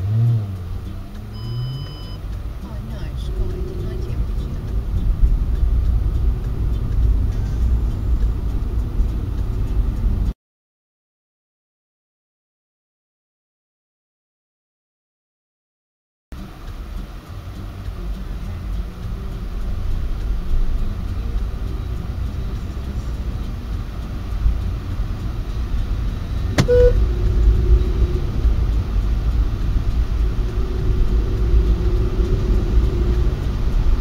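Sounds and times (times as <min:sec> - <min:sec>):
car engine and road rumble: 0:00.0 - 0:10.4, 0:16.3 - 0:34.0
short tone: 0:01.3 - 0:02.2, 0:26.5 - 0:27.0.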